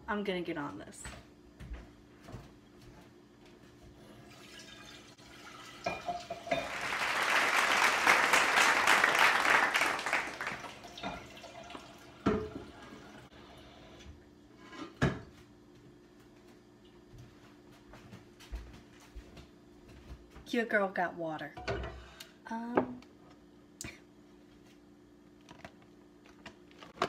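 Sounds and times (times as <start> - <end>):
tap water running into pot: 4.3 - 6.9, 10.5 - 13.3
pot clanking: 5.8 - 6.8.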